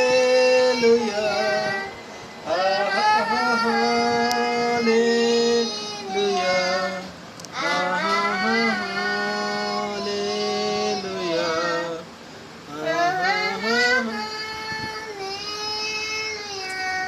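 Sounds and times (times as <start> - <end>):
boy singing devotional song: 0.0 - 17.0.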